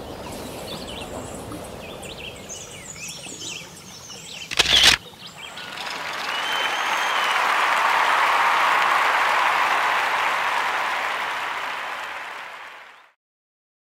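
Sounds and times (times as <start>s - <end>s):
applause: 5.6s - 13.2s.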